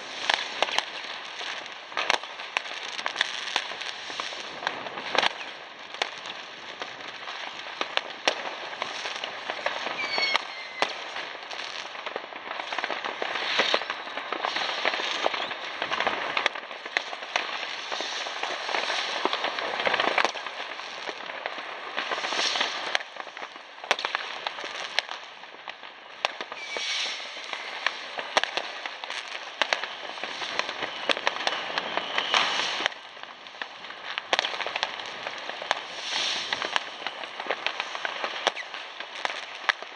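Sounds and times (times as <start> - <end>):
firework whistles: 0.0 - 7.1, 8.8 - 12.0, 12.6 - 21.3, 22.0 - 25.2, 26.2 - 39.9
fireworks crackling: 0.0 - 39.9
firecracker bangs: 9.5 - 11.8, 26.4 - 33.0.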